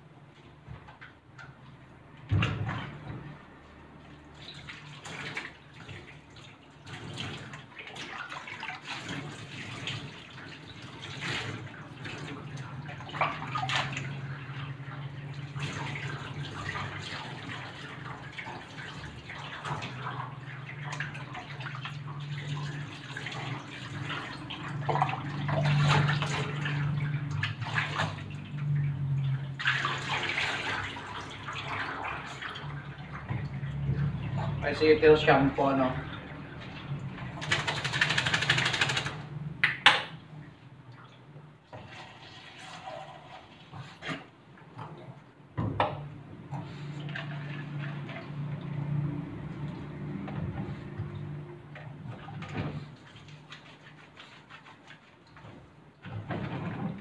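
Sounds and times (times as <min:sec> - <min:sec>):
water running and splashing: 0:04.0 - 0:39.4.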